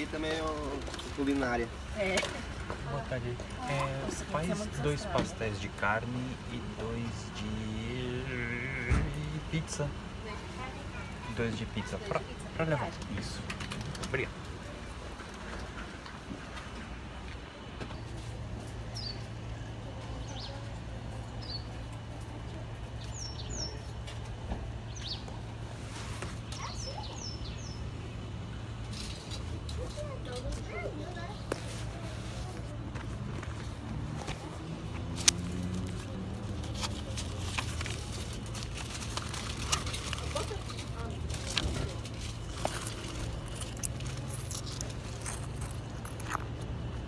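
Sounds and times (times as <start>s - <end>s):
engine humming: 0.0s - 47.0s.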